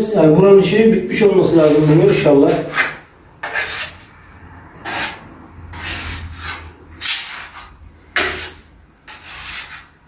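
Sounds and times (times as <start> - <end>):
putty knife scraping plaster: 1.1 - 4.1, 4.8 - 10.0.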